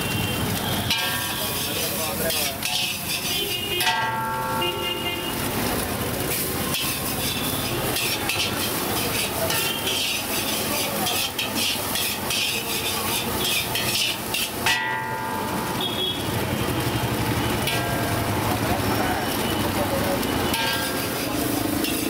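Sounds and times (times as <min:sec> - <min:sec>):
food sizzling in a wok: 0:00.0 - 0:22.0
spatula scraping a wok: 0:00.5 - 0:04.5, 0:06.2 - 0:14.8, 0:20.2 - 0:22.0.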